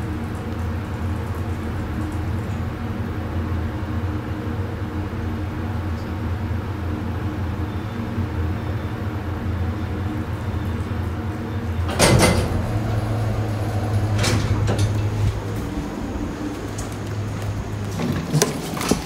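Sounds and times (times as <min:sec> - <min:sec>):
elevator humming: 0:00.0 - 0:19.0
sliding doors: 0:09.9 - 0:19.0
elevator clunk and rattle: 0:10.6 - 0:19.0.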